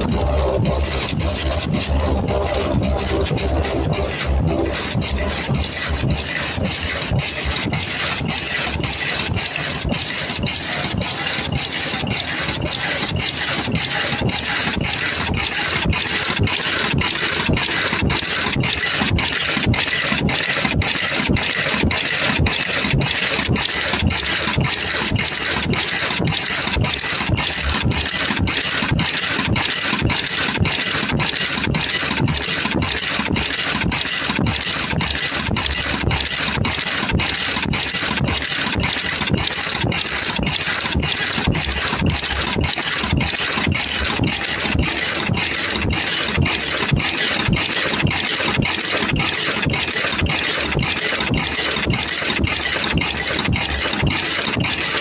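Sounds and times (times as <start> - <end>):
machine hissing with regular pulse: 0.0 - 27.0.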